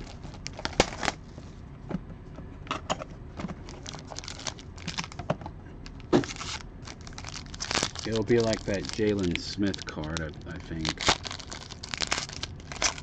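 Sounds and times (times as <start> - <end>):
wrappers crinkling and rustling: 0.0 - 1.2, 3.6 - 5.2, 5.9 - 13.0.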